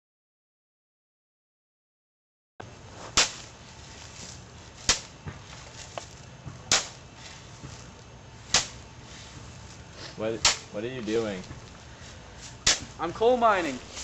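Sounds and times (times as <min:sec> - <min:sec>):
shovel chopping into dirt: 0:03.0 - 0:03.5, 0:04.8 - 0:05.1, 0:06.7 - 0:07.0, 0:08.5 - 0:08.8, 0:10.4 - 0:10.8, 0:12.6 - 0:13.0.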